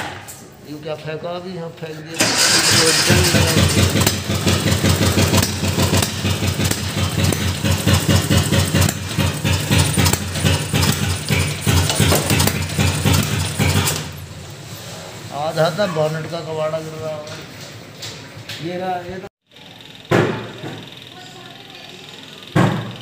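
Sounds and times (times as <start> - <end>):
car engine pulsing: 2.2 - 15.0.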